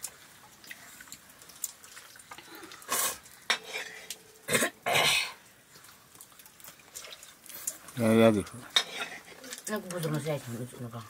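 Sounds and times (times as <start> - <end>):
metal ladle scraping in a wok: 2.9 - 4.1, 8.8 - 9.3
person coughing: 4.5 - 5.4.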